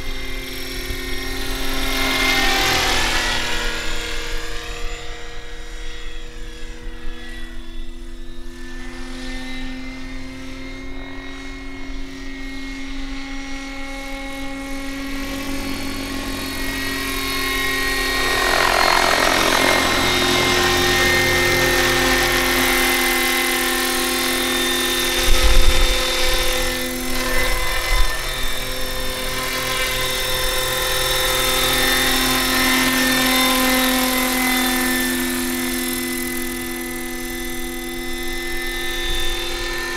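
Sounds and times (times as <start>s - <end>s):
model helicopter rotor whine: 0.0s - 39.9s.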